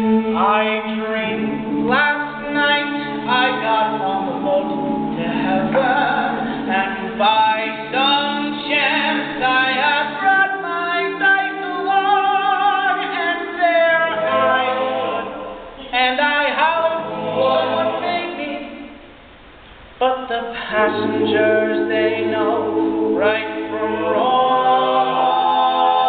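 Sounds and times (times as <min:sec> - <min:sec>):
backing singers holding chords: 0:13.8 - 0:19.0, 0:20.4 - 0:26.0.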